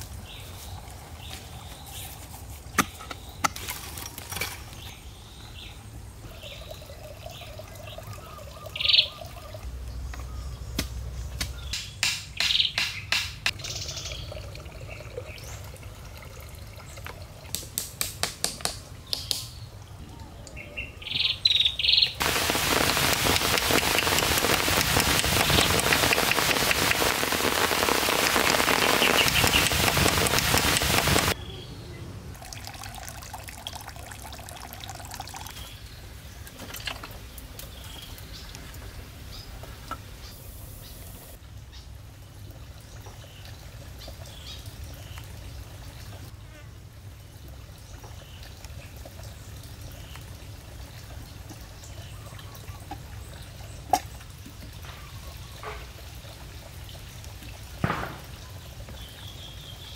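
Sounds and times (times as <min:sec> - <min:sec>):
birds chirping: 0:04.4 - 0:15.7, 0:19.0 - 0:32.2
loud rushing hiss: 0:22.2 - 0:31.4.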